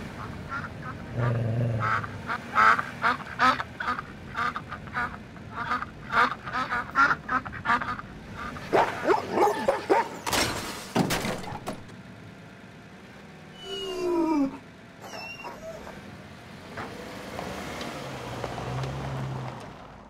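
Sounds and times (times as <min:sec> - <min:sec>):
dog yipping: 0:08.7 - 0:10.2, 0:13.6 - 0:16.0
dog howling: 0:13.6 - 0:16.0.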